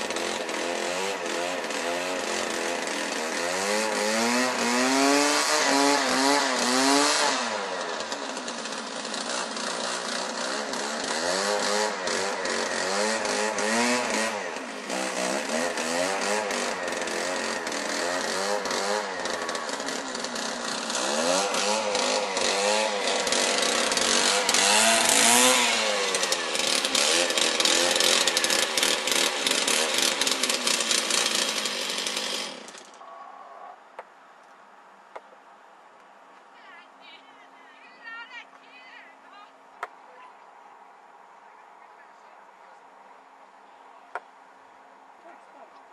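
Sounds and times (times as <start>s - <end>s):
small petrol engine revving: 0.0s - 33.0s.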